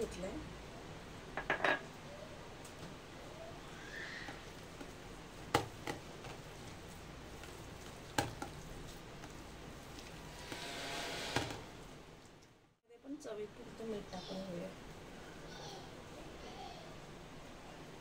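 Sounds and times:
hand squishing wet paste: 0:04.0 - 0:10.4.

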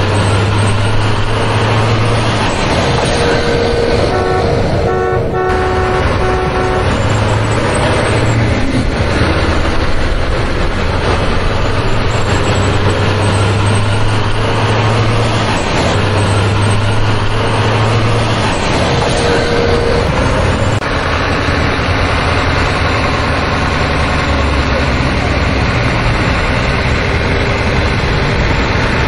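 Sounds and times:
truck engine rumbling: 0:00.0 - 0:29.0
horn beeping: 0:03.0 - 0:08.7, 0:19.0 - 0:20.8.

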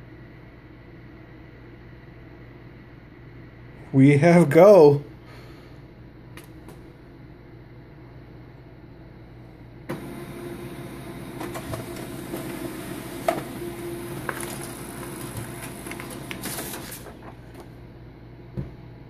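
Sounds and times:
laser printer humming and clicking: 0:09.9 - 0:17.7.

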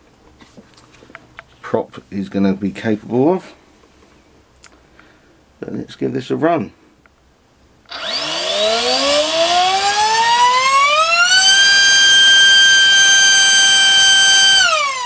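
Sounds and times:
electric motor propeller whine: 0:07.9 - 0:15.0.

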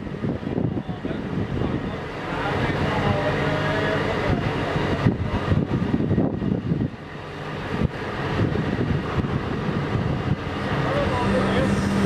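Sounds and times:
hydraulic crane rumble: 0:00.0 - 0:12.0.

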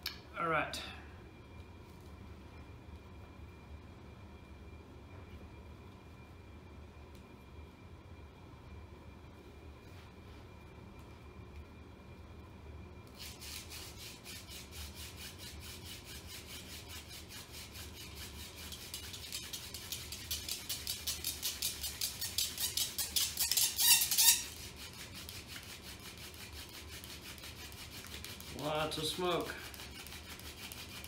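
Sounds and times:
hand-drill spindle scraping fireboard: 0:13.2 - 0:31.0
short squeal: 0:22.3 - 0:24.5.

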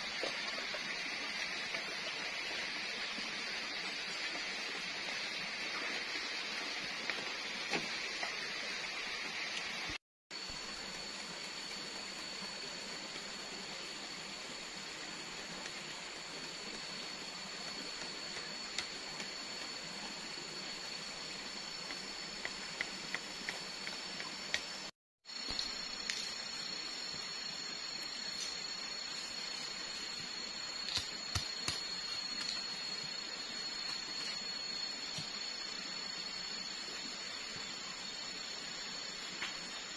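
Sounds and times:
constant high-pitched whine: 0:00.0 - 0:39.9
forest hiss: 0:00.0 - 0:39.9
stream running: 0:00.0 - 0:39.9
blade cutting bamboo: 0:30.8 - 0:32.5.

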